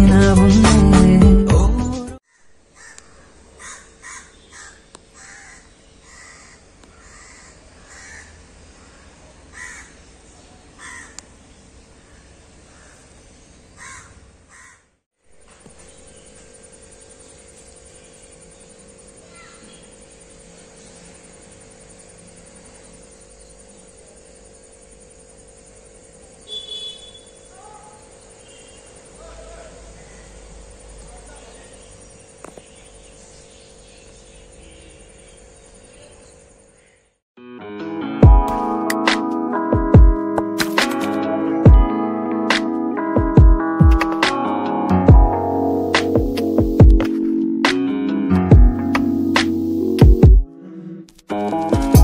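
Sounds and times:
bird calling: 2.3s - 10.0s, 19.2s - 20.0s, 26.4s - 37.1s.

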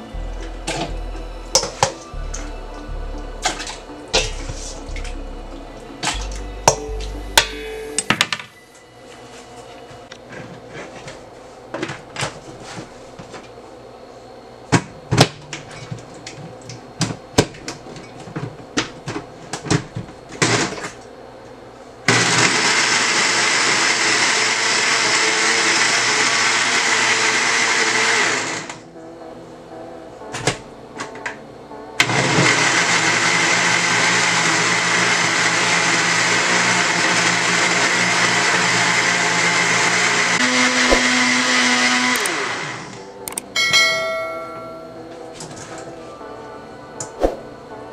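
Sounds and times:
blender running: 22.1s - 28.8s, 32.0s - 43.1s.

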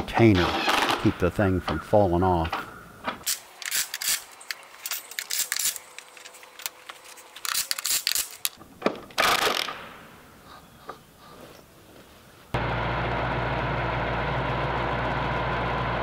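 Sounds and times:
metallic clicking of hand tools: 3.2s - 8.6s.

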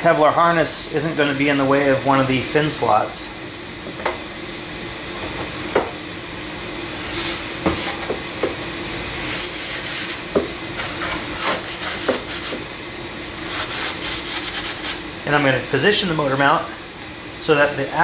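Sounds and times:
tube scraping rubs: 6.8s - 8.1s, 8.8s - 10.2s.

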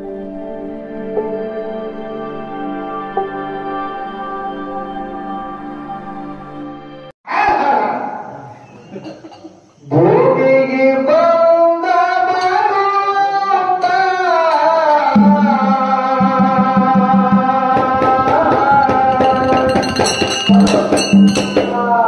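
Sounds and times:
man singing through a pa: 9.9s - 22.0s
high clicking and jingling: 18.8s - 21.7s.

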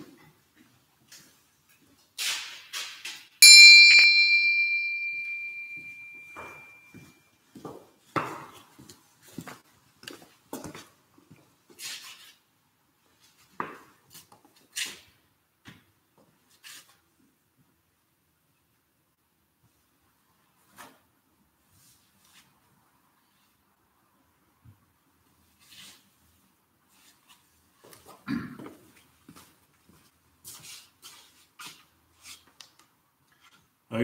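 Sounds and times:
small bell ringing: 3.4s - 7.0s.

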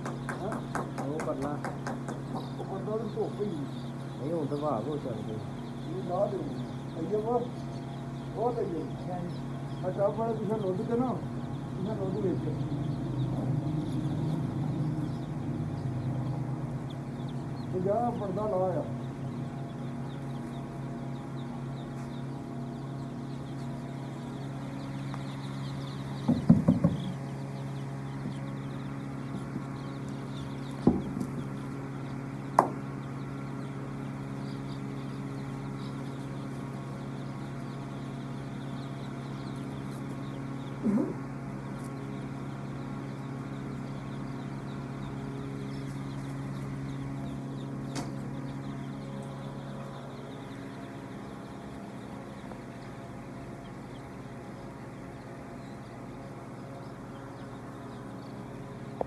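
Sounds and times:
chicks peeping: 0.0s - 59.0s
steady low hum: 0.0s - 59.0s
sharp knocks: 26.2s - 27.2s, 30.8s - 31.5s, 32.6s - 32.8s.

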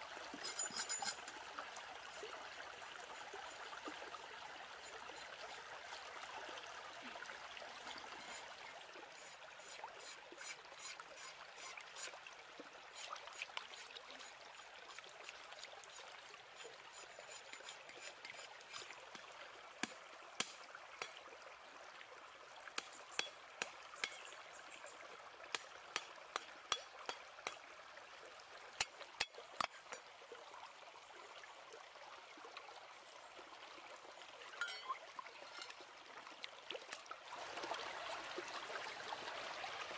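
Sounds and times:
faint trickling water: 0.0s - 39.9s.

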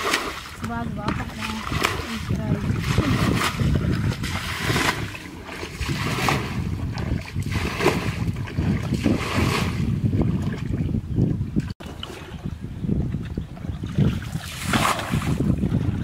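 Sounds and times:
muddy water splashing: 0.0s - 16.0s
wind buffeting microphone: 0.0s - 16.0s.

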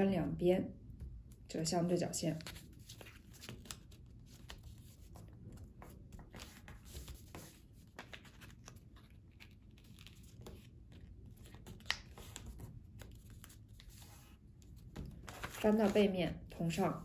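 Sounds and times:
paper rustling and crinkling: 2.4s - 16.2s
paper snap: 11.8s - 12.2s.

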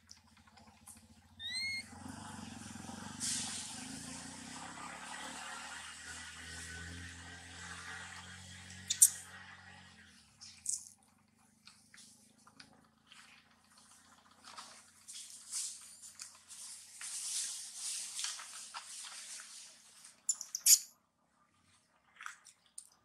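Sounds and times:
dry leaves rustling: 15.2s - 20.0s
sharp loud leaf crackles: 16.5s - 19.8s.

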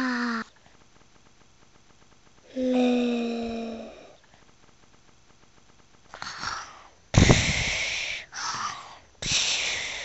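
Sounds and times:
person imitating snoring: 2.5s - 4.2s.

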